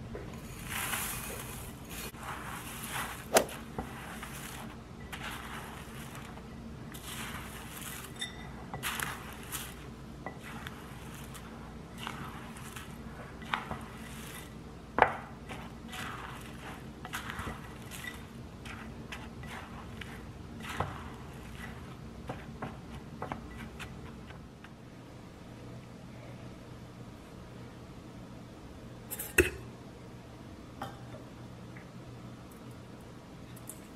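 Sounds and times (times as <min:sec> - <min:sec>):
spatula scraping dry flour: 0:00.3 - 0:24.3.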